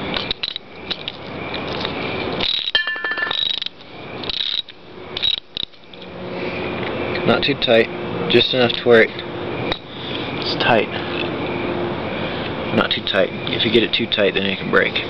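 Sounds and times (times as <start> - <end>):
ratchet clicks: 0.1 - 1.2, 2.4 - 6.1.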